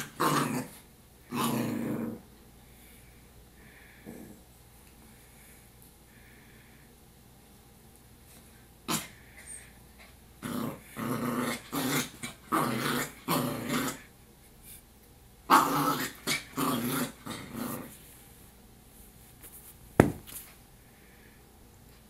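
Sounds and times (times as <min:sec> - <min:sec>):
puppy growling: 0:00.0 - 0:02.3, 0:10.4 - 0:14.1, 0:15.5 - 0:18.0.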